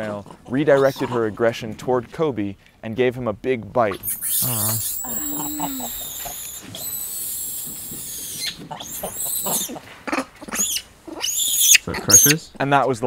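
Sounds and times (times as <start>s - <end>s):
monkeys screaming: 0.7s - 1.2s, 3.9s - 12.4s.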